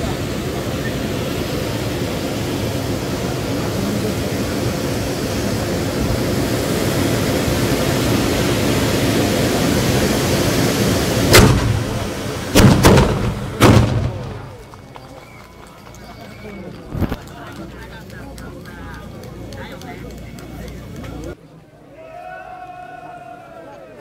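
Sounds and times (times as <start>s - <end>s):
firework bangs: 0.0s - 15.8s
fireworks rushing roar: 0.0s - 21.4s.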